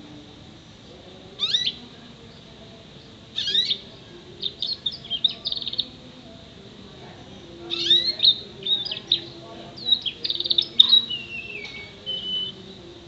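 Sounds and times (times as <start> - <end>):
canary singing: 0.0 - 6.2, 7.2 - 13.0.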